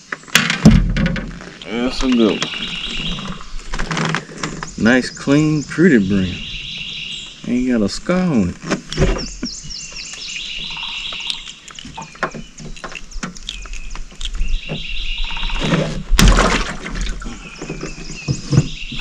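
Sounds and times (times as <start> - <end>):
birds chirping: 1.4 - 19.0
handling knocks and clicks: 11.2 - 14.9.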